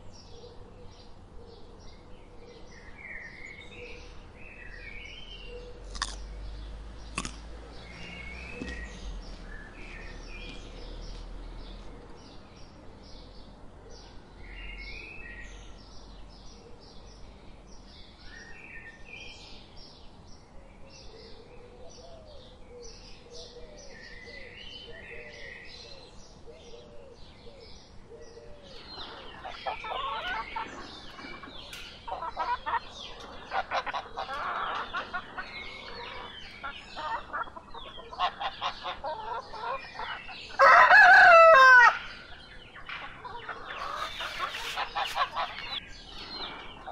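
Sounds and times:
small birds chirping: 0.0 - 46.9
animal calls: 28.4 - 40.8
rooster crowing: 40.5 - 42.2.

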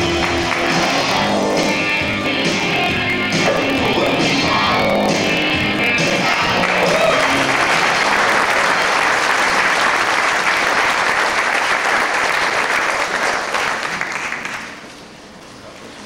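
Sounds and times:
audience applauding: 0.0 - 1.2, 3.4 - 14.8.

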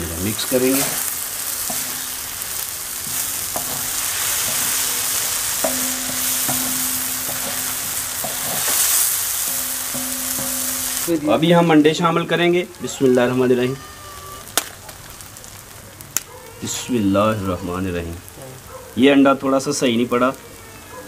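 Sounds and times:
vegetables sizzling in oil: 0.0 - 21.0
wooden spatula scraping pan: 3.0 - 11.1.

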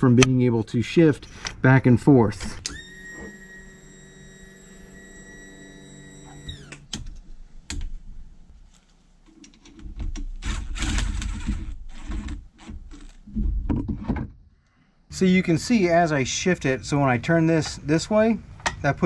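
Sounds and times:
small power tool motor: 2.7 - 6.9.

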